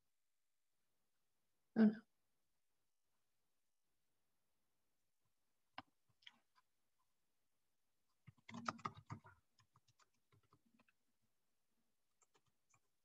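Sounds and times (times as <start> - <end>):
computer keyboard typing: 8.2 - 11.0, 12.1 - 13.0.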